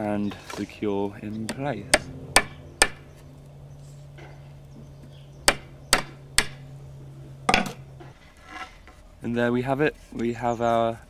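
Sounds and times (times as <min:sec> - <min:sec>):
hammer striking wood: 0:01.5 - 0:03.1, 0:05.4 - 0:06.6, 0:07.5 - 0:08.1.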